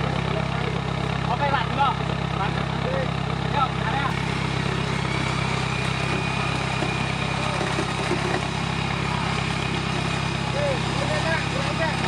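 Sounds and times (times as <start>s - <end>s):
vehicle engine running steadily: 0.0s - 12.0s.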